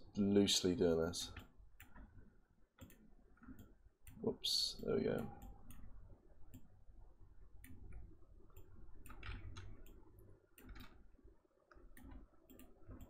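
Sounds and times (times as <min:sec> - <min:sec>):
low steady hum: 0:00.0 - 0:13.0
computer mouse clicks: 0:01.3 - 0:02.2, 0:02.8 - 0:04.2, 0:04.8 - 0:05.9, 0:06.5 - 0:06.7, 0:07.6 - 0:11.1, 0:11.7 - 0:13.0.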